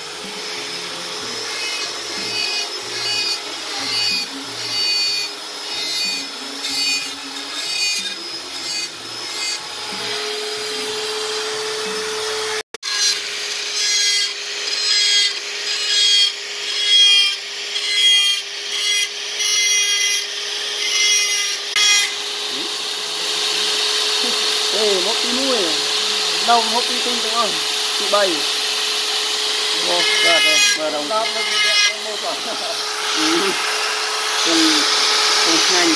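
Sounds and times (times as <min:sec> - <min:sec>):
rotary tool whining: 0:00.0 - 0:35.9.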